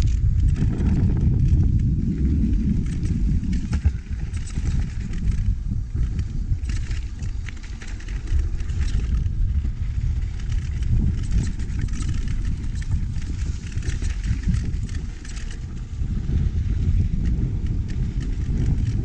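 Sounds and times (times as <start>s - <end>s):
bike rattling: 0.0s - 19.0s
wind rumbling on microphone: 0.0s - 19.0s
tyres crunching over loose stones: 10.2s - 15.7s.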